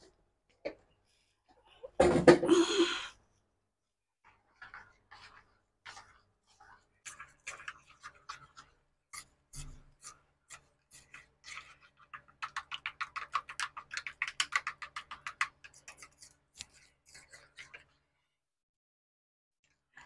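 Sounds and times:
spoon beating batter in bowl: 0:04.2 - 0:18.0.

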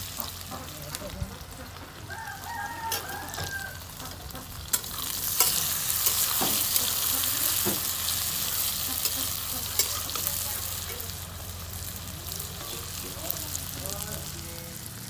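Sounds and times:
vegetables sizzling in hot oil: 0:00.0 - 0:15.0
metal spatula scraping wok: 0:02.6 - 0:13.8
spatula clanking against pan: 0:04.7 - 0:07.9, 0:09.0 - 0:10.3.

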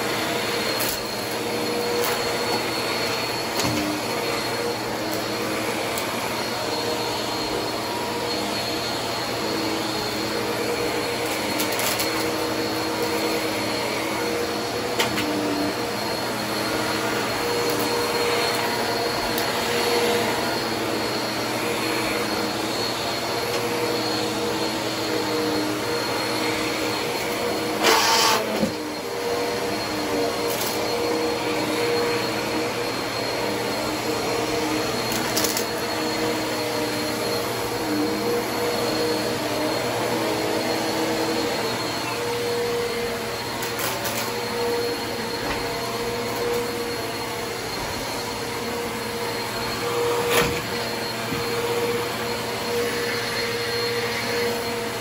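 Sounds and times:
vacuum cleaners whining drone: 0:00.0 - 0:55.0.

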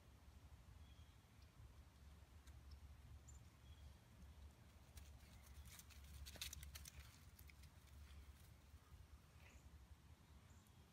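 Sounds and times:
faint crackling rustling clicks: 0:04.2 - 0:08.7.

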